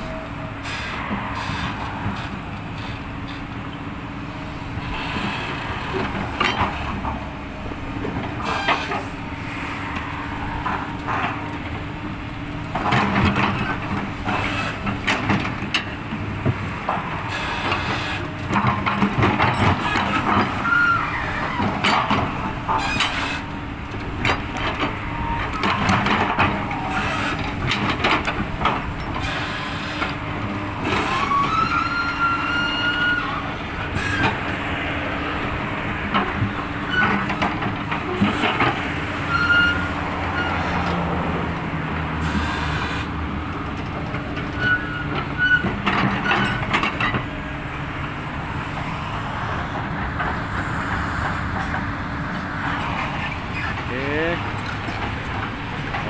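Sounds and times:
diesel engine running: 0.0s - 56.0s
high metallic squeals: 19.9s - 21.7s, 31.0s - 34.3s, 39.3s - 40.6s, 44.6s - 46.6s.

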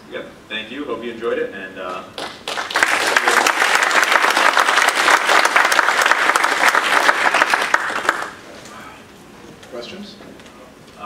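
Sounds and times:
audience applause: 2.2s - 8.4s.

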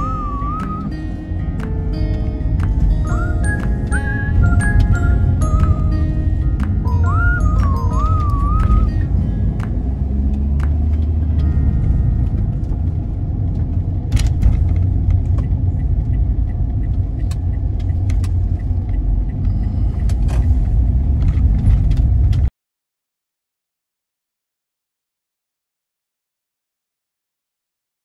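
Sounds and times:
low rumble: 0.0s - 22.5s.

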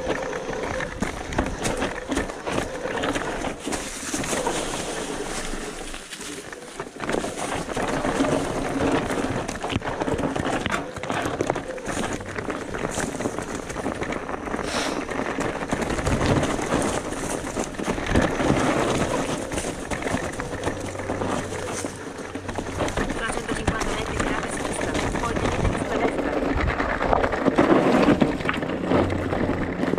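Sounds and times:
bike rattling and knocking: 0.0s - 29.9s
bike tyres on dirt and stones: 0.0s - 29.9s.

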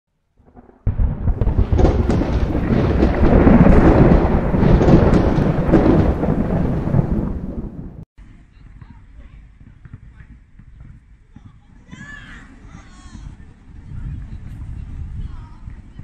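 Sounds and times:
thunder-like rumbling: 0.4s - 8.0s.

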